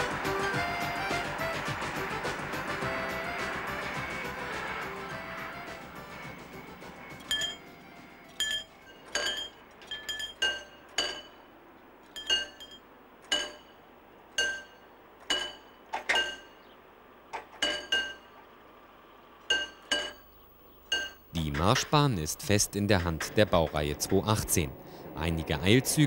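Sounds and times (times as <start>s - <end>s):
level crossing warning bell: 0.1s - 16.7s, 17.6s - 18.4s, 19.5s - 20.3s.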